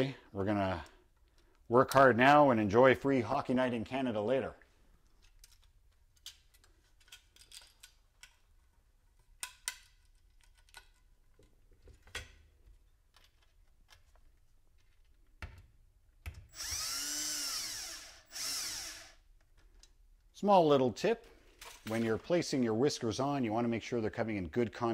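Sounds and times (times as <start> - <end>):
clicks of small parts handled: 5.0 - 8.6, 9.2 - 12.4, 21.2 - 22.0
cordless drill whine: 16.5 - 19.2.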